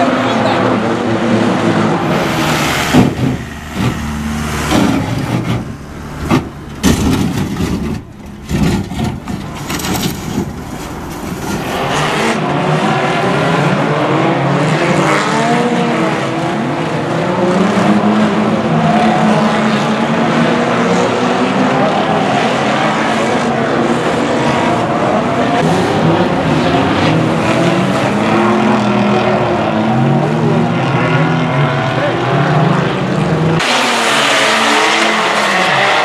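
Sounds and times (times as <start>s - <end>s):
racing car engines revving: 0.0s - 36.0s
cars crashing bangs: 1.8s - 13.2s.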